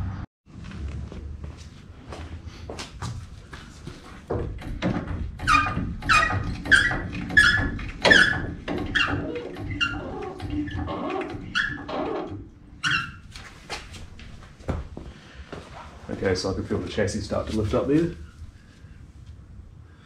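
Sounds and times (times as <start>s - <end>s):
floor jack pumping squeak and clunk: 4.5s - 13.3s.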